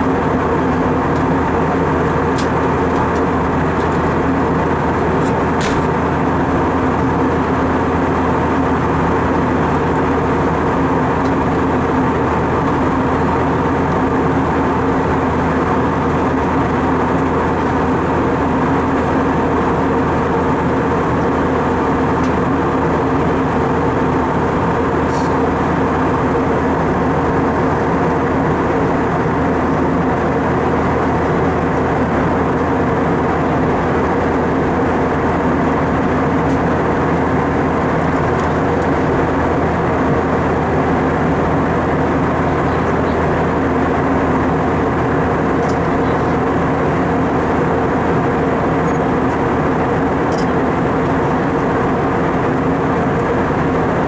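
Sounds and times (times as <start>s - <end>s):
airplane cabin drone: 0.0s - 54.0s
steady hum tones: 0.0s - 54.0s.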